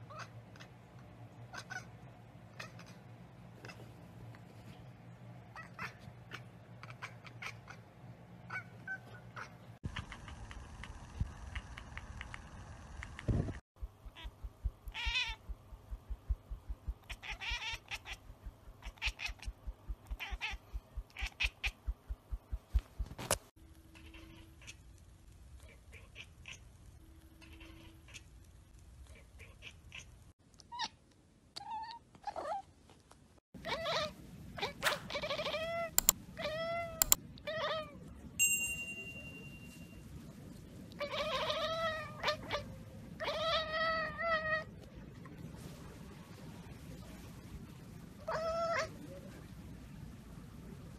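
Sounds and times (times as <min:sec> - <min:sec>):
cat chattering: 0:02.5 - 0:03.0, 0:05.5 - 0:07.8, 0:08.5 - 0:10.5, 0:14.1 - 0:15.5, 0:17.0 - 0:21.9, 0:24.0 - 0:24.8, 0:25.6 - 0:26.7, 0:27.4 - 0:28.3, 0:29.1 - 0:30.1
soft low thumps: 0:13.3 - 0:17.1, 0:19.5 - 0:23.2
bell ding: 0:38.4 - 0:40.0.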